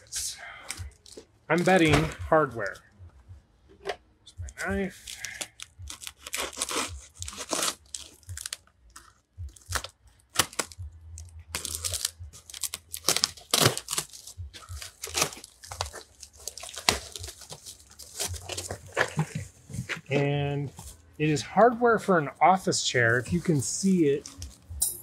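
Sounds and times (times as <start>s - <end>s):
tape and cardboard ripping: 4.6s - 20.2s
knife slitting packing tape: 5.1s - 8.6s, 11.6s - 17.3s.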